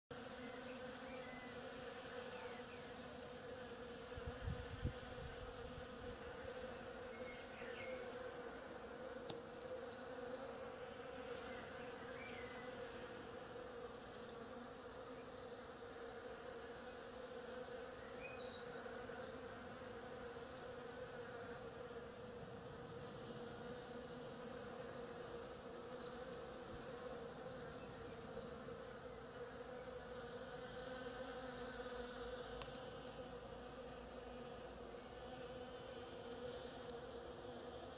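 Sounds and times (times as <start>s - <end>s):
bees buzzing: 0.1s - 37.9s.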